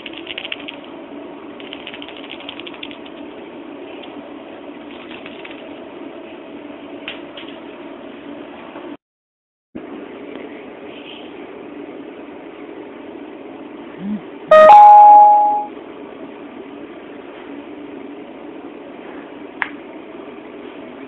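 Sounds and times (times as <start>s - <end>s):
low room hum: 0.0s - 9.0s, 9.8s - 21.0s
two-note chime: 14.5s - 15.7s.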